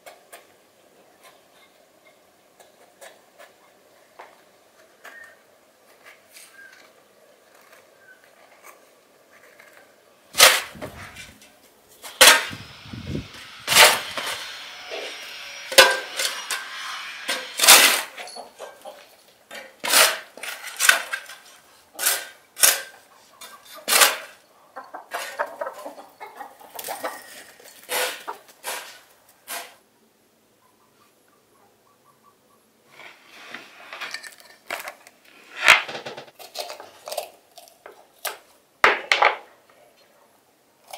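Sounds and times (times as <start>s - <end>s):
chickens clucking: 18.2s - 19.3s, 22.9s - 29.0s, 30.6s - 33.0s.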